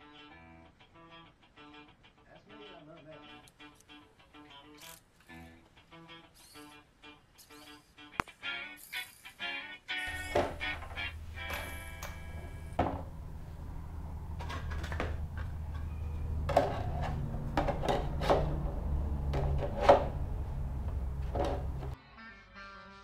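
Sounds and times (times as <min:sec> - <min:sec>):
hard parts knocking and clattering: 0:10.1 - 0:13.4, 0:14.2 - 0:22.0
steady low hum: 0:10.1 - 0:22.0.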